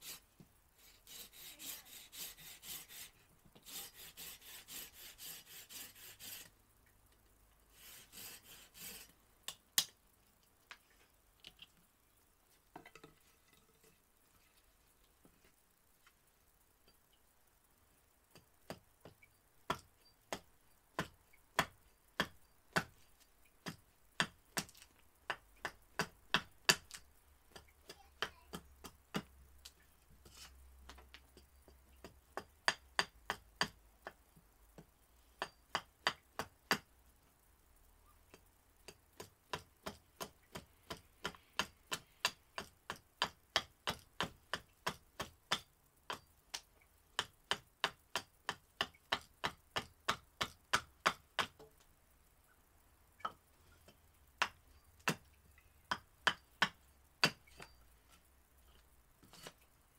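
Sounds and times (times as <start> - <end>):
axe chopping wood: 21.0 - 23.0, 39.2 - 46.3, 47.2 - 51.6, 54.4 - 55.2, 55.9 - 57.7.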